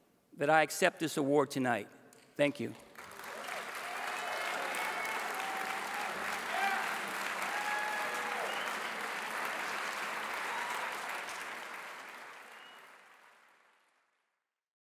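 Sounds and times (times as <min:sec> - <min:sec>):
audience applauding: 0:02.9 - 0:14.1.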